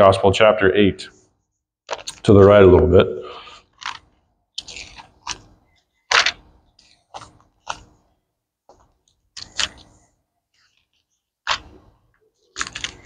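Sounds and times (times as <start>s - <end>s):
book pages turning: 1.9s - 2.6s, 3.5s - 13.0s.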